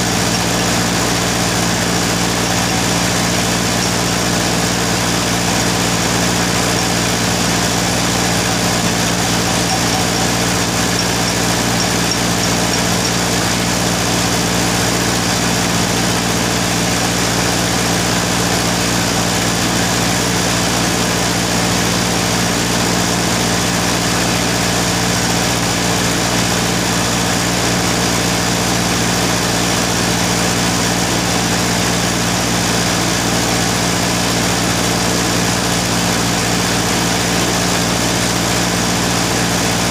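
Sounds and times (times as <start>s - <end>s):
workshop machinery humming: 0.0s - 19.4s.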